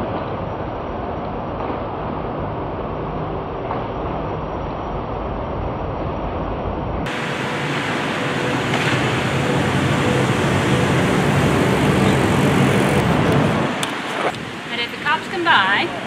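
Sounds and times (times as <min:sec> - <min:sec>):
low traffic rumble: 0:00.0 - 0:16.0.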